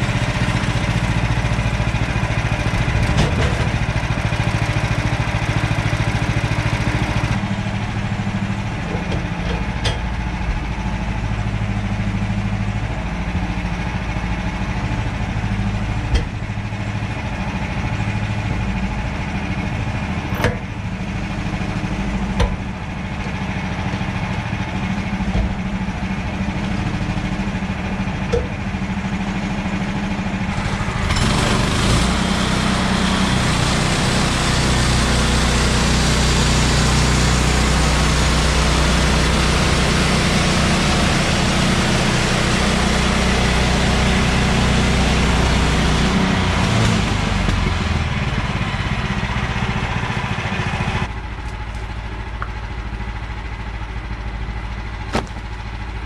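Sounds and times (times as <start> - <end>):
bandsaw mill engine running: 0.0 - 56.0.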